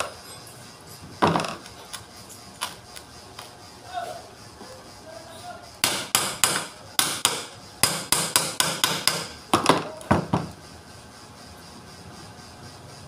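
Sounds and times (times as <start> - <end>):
hammer tapping on metal: 5.8 - 9.4.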